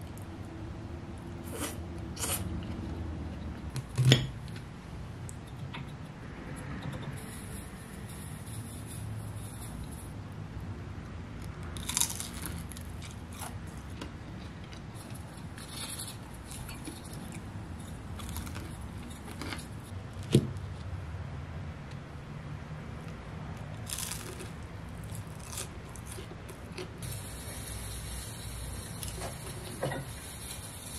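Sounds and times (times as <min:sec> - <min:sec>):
crispy food crunching and chewing: 0:11.4 - 0:20.3, 0:23.0 - 0:27.0.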